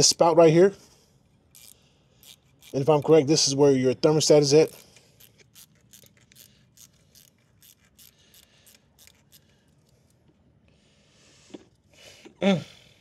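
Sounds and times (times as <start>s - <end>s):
person grunting: 12.4s - 12.9s.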